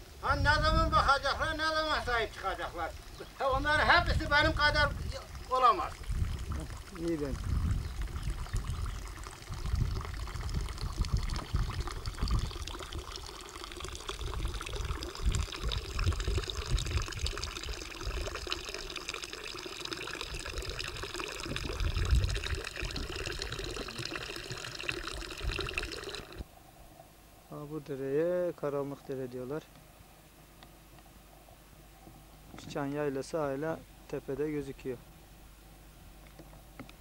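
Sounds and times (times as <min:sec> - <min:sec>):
wind rumble on microphone: 0:00.2 - 0:02.2, 0:03.5 - 0:13.2, 0:13.9 - 0:18.6, 0:20.2 - 0:24.0, 0:25.2 - 0:26.5
fountain water running into trough: 0:01.4 - 0:26.5.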